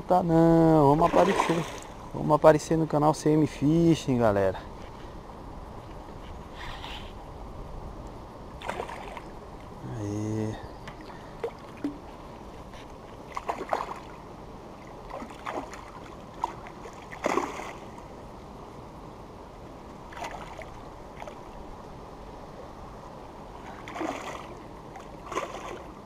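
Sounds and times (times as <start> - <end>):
steady background hiss: 0.0 - 26.0
fish splashing in water: 13.3 - 14.2, 15.0 - 17.9, 23.8 - 25.9.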